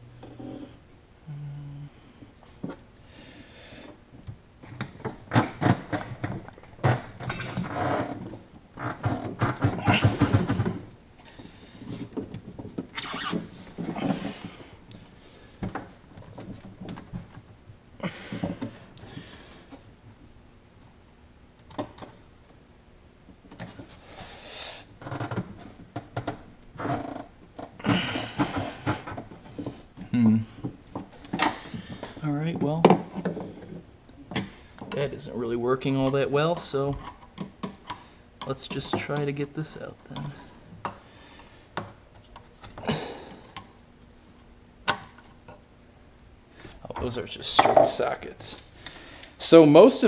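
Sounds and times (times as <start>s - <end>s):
parts clunking and scraping: 3.9s - 19.9s, 25.0s - 43.7s, 46.6s - 49.6s
knocks and rattles: 4.6s - 10.9s.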